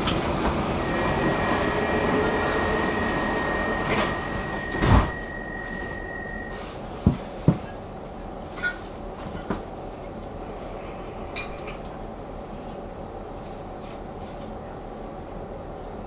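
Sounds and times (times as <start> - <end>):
high warning tone: 0.7 - 6.7.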